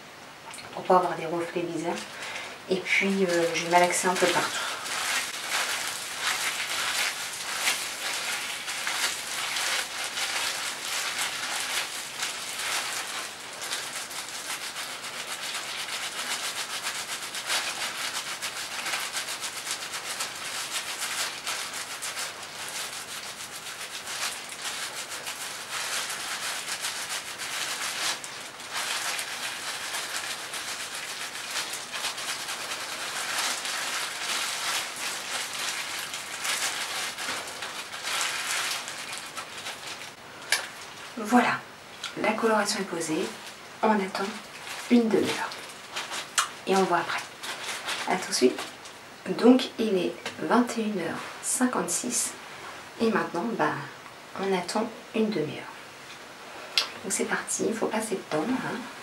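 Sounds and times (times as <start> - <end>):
wet hair rubbing: 2.8 - 49.0.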